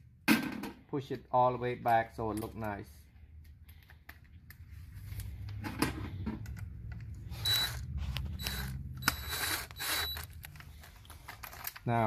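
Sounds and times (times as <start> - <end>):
screwdriver turning screw: 7.4 - 10.7.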